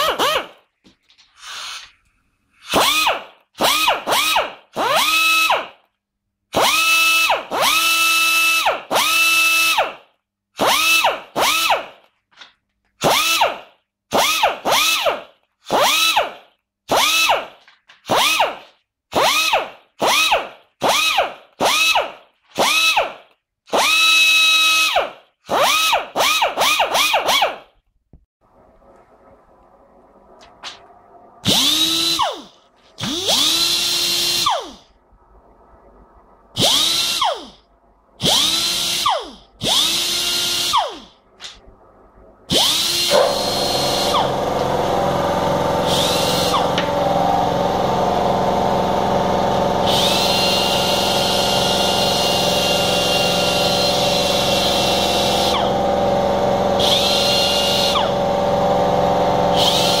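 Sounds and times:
low machine drone: 28.4s - 31.7s, 43.1s - 59.8s
air die grinder whining: 42.5s - 60.0s.

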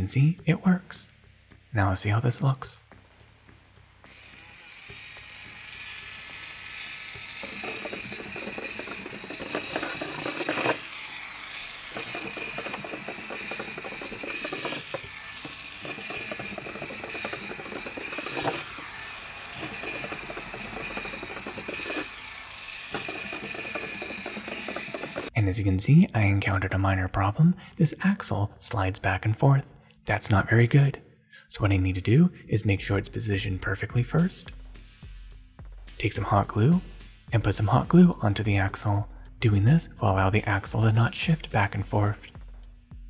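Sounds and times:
small gear motor whining: 4.0s - 25.9s
wheels and gears clattering on wood: 6.2s - 25.4s.

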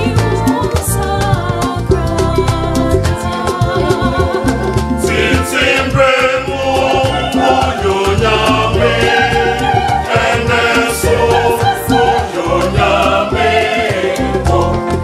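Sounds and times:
bass line: 0.0s - 15.0s
choir singing gospel song: 0.0s - 15.0s
steady drum beat: 0.0s - 15.0s.

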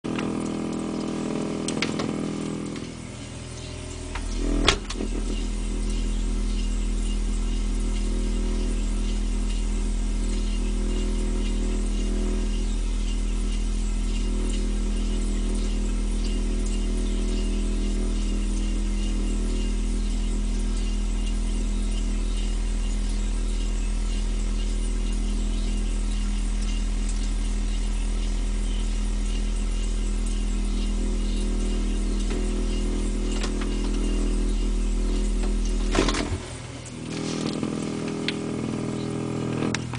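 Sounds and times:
fridge electrical hum: 0.0s - 39.9s
refrigerator door thud: 4.2s - 5.4s.

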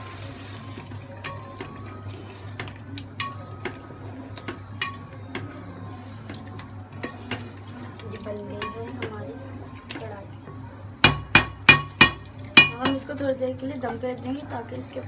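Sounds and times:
spoon clinking against metal pot: 4.4s - 5.5s, 8.0s - 9.2s, 11.0s - 13.1s.

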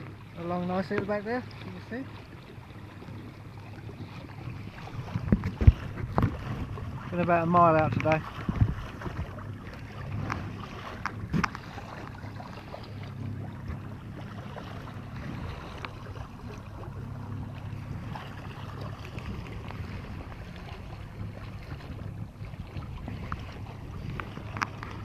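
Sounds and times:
water washing along hull: 0.0s - 25.0s
wind on microphone: 2.8s - 25.0s.

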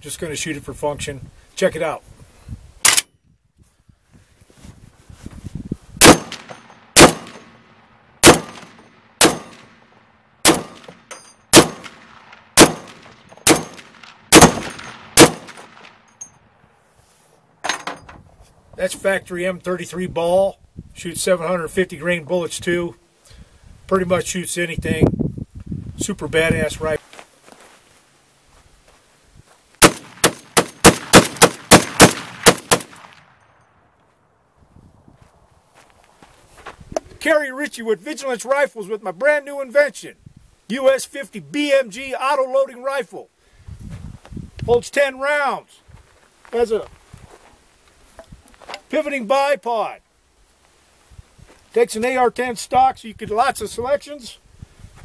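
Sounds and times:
rifle shots with echo: 6.0s - 7.6s, 8.2s - 16.0s, 29.8s - 33.4s
light metallic clinks: 11.1s - 11.5s, 15.5s - 16.4s.

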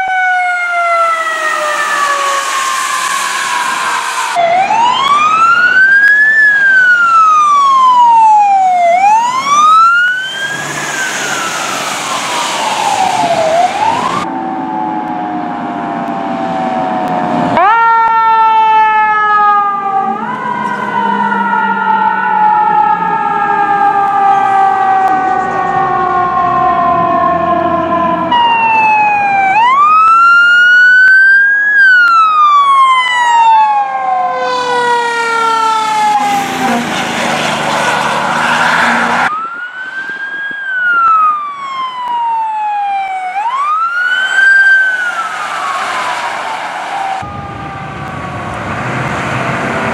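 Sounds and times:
fire truck siren wailing: 0.0s - 49.9s
loud rushing noise: 1.3s - 5.2s, 10.2s - 14.3s, 35.2s - 39.3s, 43.9s - 49.9s.

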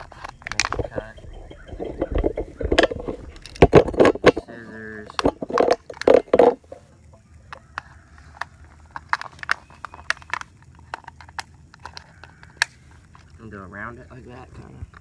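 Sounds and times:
plastic squeak: 0.0s - 3.7s
plastic bottle crinkling: 0.0s - 6.9s.

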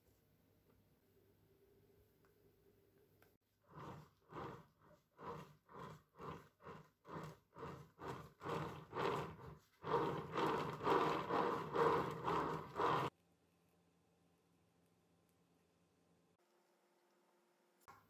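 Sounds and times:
spatula scraping cream: 3.6s - 13.1s.

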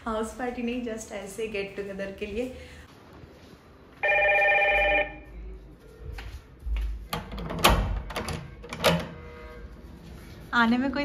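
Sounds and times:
video door phone ring chime: 4.0s - 5.2s.

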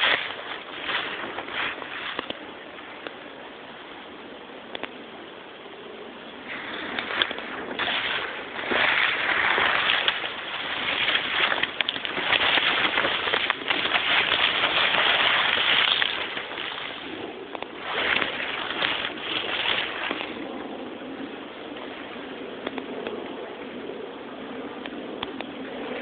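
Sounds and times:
twigs crackling: 0.0s - 3.2s, 6.5s - 20.5s
leaves rustling against camera: 0.0s - 3.9s, 6.1s - 22.9s.

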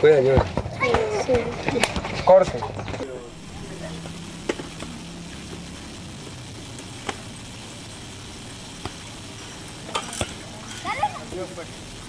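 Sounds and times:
steady hiss: 3.0s - 12.0s.

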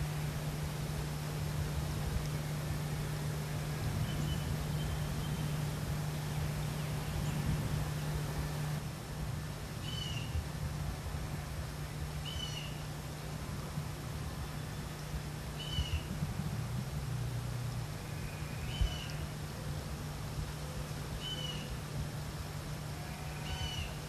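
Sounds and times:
bees buzzing: 0.0s - 8.8s
bird chirping: 3.9s - 5.7s.

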